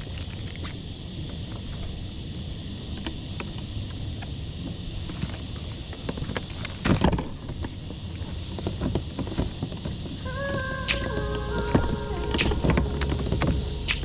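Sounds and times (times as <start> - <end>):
low background rumble: 9.6 - 14.0.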